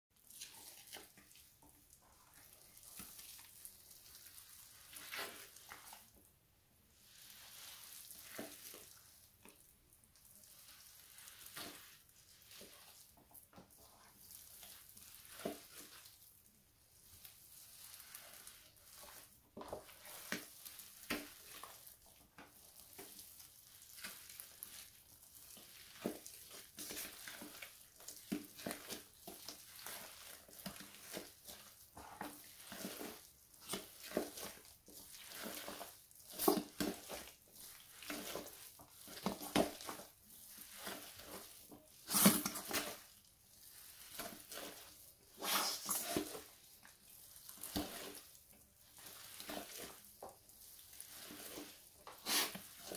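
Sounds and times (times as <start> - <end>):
feet squelching in cake: 17.2 - 52.9.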